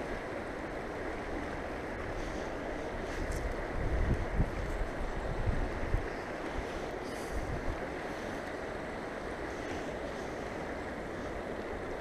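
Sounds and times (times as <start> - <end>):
wind on microphone: 2.0 - 8.4.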